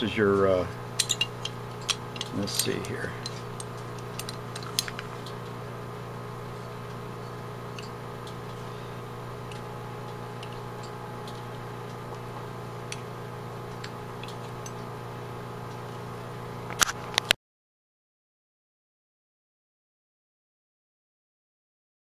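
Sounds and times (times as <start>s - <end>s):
low electrical hum: 0.0s - 17.4s.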